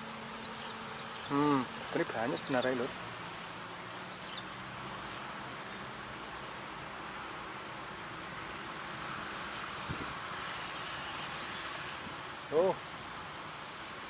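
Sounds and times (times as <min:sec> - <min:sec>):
faint hiss: 0:00.0 - 0:14.0
insect singing high tone: 0:00.0 - 0:14.0.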